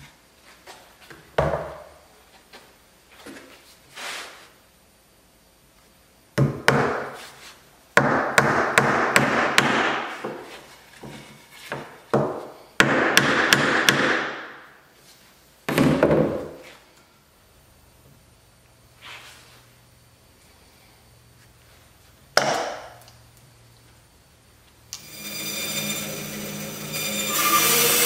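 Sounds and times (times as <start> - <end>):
hammer striking nail into wood: 8.0 - 10.0, 12.2 - 14.4.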